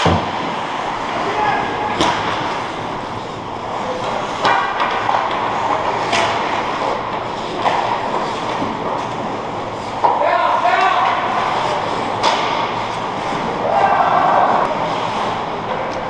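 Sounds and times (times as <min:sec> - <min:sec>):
hockey sticks and puck knocking: 0:01.9 - 0:02.6, 0:03.9 - 0:09.3, 0:10.0 - 0:13.5
skate blades scraping ice: 0:14.4 - 0:15.9.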